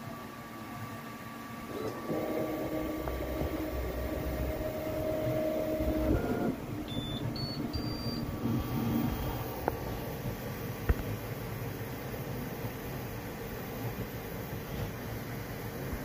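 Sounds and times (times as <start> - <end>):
printer fan noise: 1.2 - 16.0
stepper motors whining: 1.8 - 9.2
short high beeps: 6.9 - 8.2.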